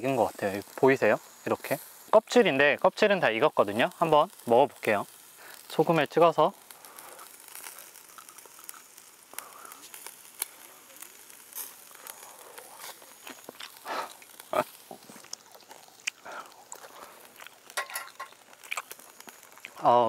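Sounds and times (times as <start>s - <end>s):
chewing with crisp crunches: 6.6s - 19.9s.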